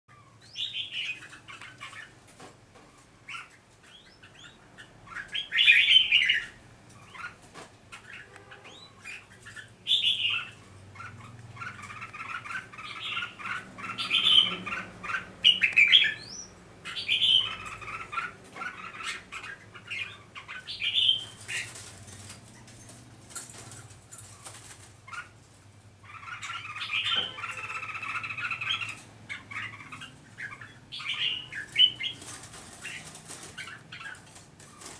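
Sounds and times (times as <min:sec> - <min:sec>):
birds chirping and singing: 0:00.1 - 0:34.9
wing flutters and clicks: 0:21.2 - 0:25.1, 0:31.6 - 0:34.9.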